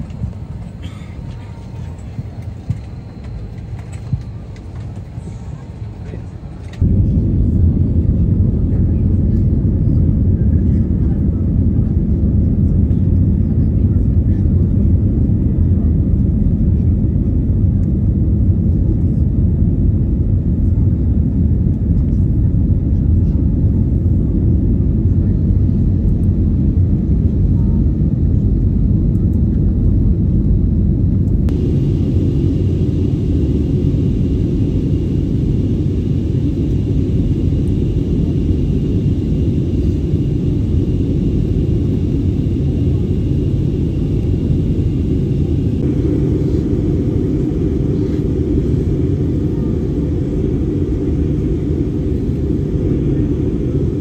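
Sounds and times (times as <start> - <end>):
jet cabin engine rumble: 0.0 - 54.0
faint high whine: 31.5 - 54.0.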